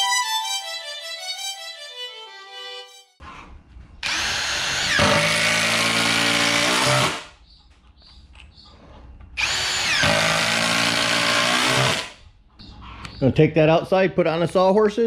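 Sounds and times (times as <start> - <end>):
cordless drill driving screws: 4.0 - 7.2, 9.4 - 12.2.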